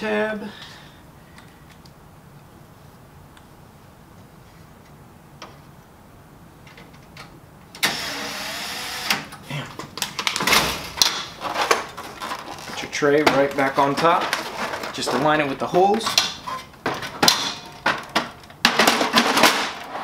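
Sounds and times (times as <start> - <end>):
electric screwdriver whine: 7.8 - 9.2
clicks and knocks of plastic parts: 9.8 - 19.9.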